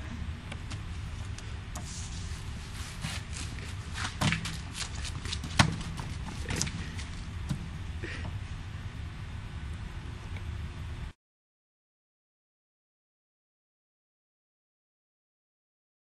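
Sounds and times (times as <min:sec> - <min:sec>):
steady low rumble: 0:00.0 - 0:11.2.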